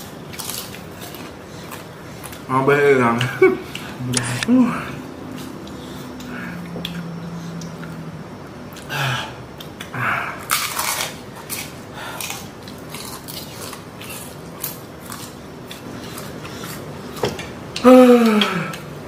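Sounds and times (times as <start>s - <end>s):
low hum of a voice: 2.4s - 7.9s.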